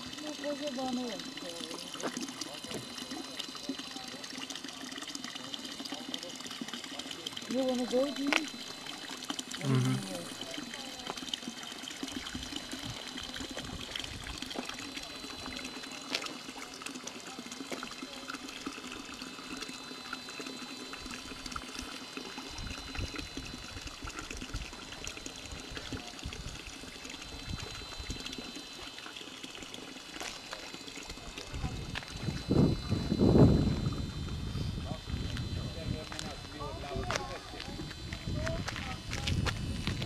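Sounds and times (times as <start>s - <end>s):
wind rumbling on microphone: 31.5s - 40.0s.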